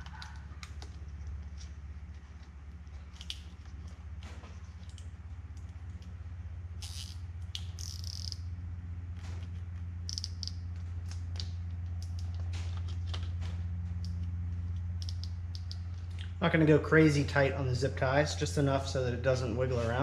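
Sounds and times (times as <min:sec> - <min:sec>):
steady low hum: 0:00.0 - 0:20.0
zip ties clicking: 0:06.8 - 0:08.4, 0:10.1 - 0:12.4, 0:15.0 - 0:16.1.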